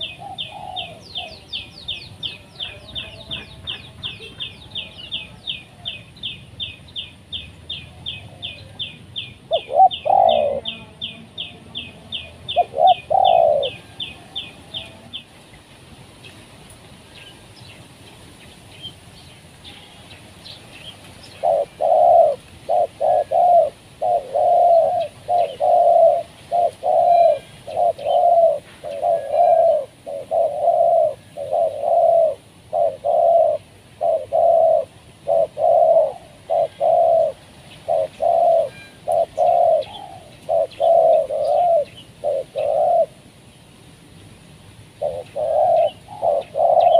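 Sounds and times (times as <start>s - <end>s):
doves cooing: 0.0s - 6.0s, 7.9s - 15.5s, 21.2s - 43.2s, 44.9s - 46.9s.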